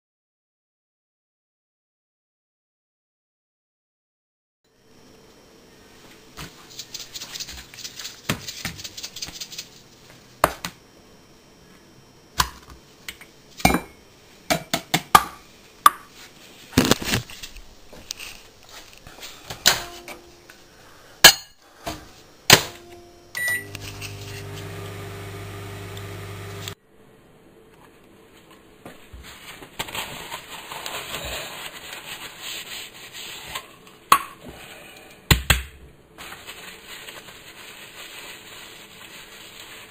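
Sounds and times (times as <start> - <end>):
microwave oven humming: 22.4 - 26.8
microwave oven beeping: 22.6 - 26.8
paper towel rustling: 36.2 - 39.9.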